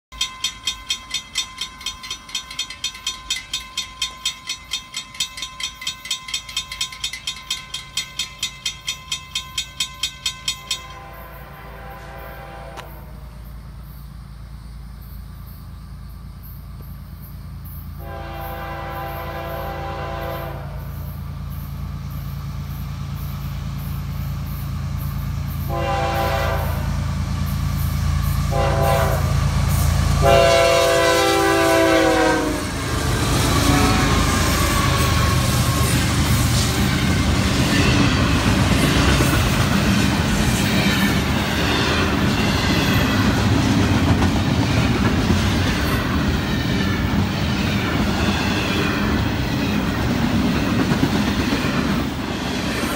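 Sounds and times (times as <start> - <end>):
crossing bell clanging: 0.1 - 11.5, 27.4 - 51.6
locomotive engine rumble: 0.2 - 52.9
locomotive horn blasts: 10.6 - 13.3, 18.0 - 21.1, 25.6 - 27.1, 28.5 - 29.5, 30.1 - 37.2.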